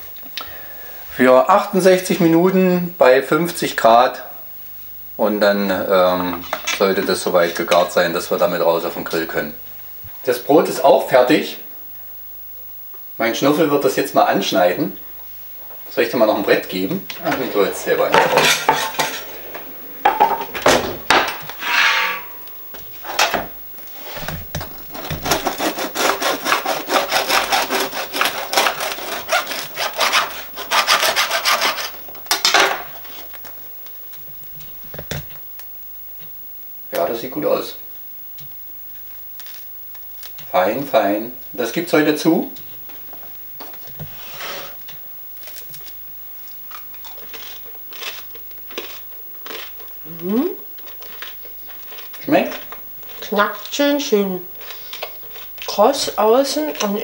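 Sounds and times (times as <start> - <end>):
bread knife sawing crust: 24.8 - 32.0
bread crust crunching: 45.4 - 50.0.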